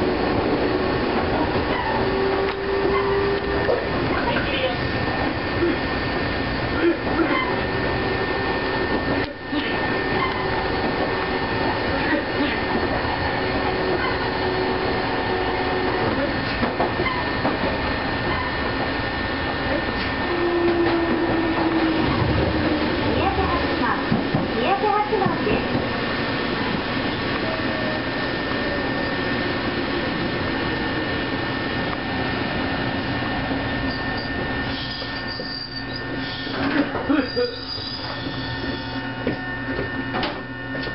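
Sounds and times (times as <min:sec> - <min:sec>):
train wheels rumbling on track: 0:00.0 - 0:40.9
high wheel squeal: 0:01.7 - 0:04.4, 0:33.8 - 0:39.1.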